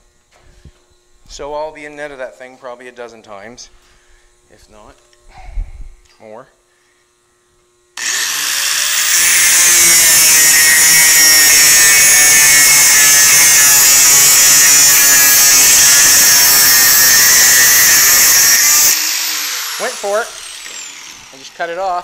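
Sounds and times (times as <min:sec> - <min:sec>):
angle grinder cutting metal: 0:08.0 - 0:22.0.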